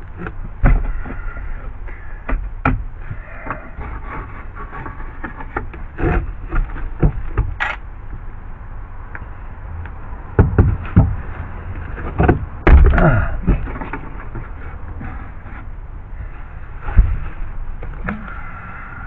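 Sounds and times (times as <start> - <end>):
heavy thumps: 10.3 - 15.2, 16.8 - 18.4
tools and parts knocking: 10.4 - 11.2, 12.0 - 14.5.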